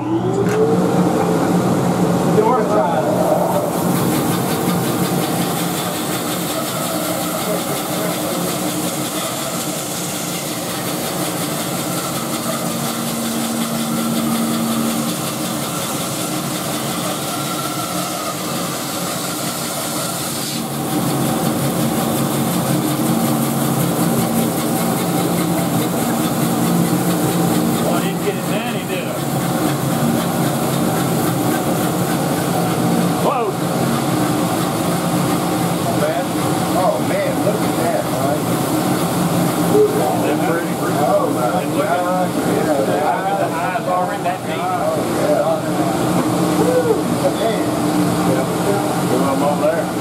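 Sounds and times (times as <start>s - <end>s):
band saw cutting wood: 2.5s - 39.0s.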